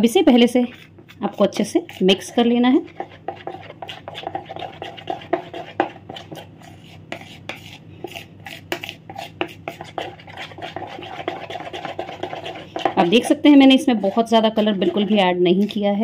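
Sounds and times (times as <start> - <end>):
spoon scraping plastic bowl: 0.0 - 16.0.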